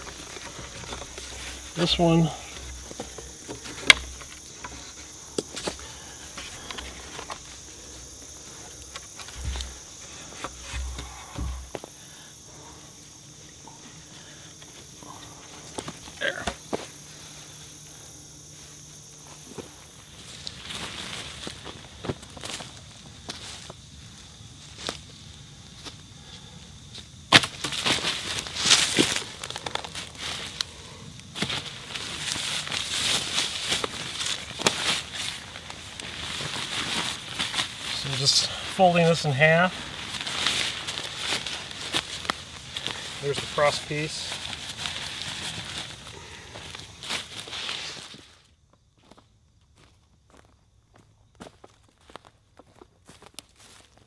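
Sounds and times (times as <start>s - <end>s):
plastic tarp rustling: 0.0s - 5.1s, 27.5s - 30.6s, 31.4s - 48.4s
wooden branches knocking: 0.0s - 5.8s, 8.8s - 11.9s
footsteps crunching in dry leaves: 0.0s - 12.5s, 18.9s - 23.8s, 27.4s - 49.2s, 51.4s - 54.0s
high insect drone: 0.0s - 54.0s.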